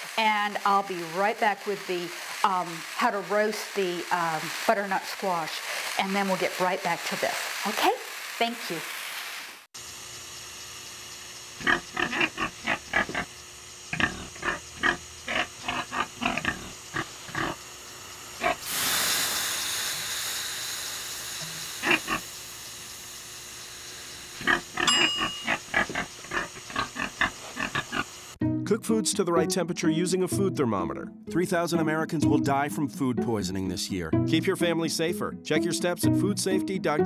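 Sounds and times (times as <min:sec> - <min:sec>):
steady hiss: 0:00.0 - 0:28.4
pig grunting: 0:11.6 - 0:13.3, 0:13.9 - 0:17.6, 0:18.4 - 0:18.6, 0:21.8 - 0:22.2, 0:24.4 - 0:28.1.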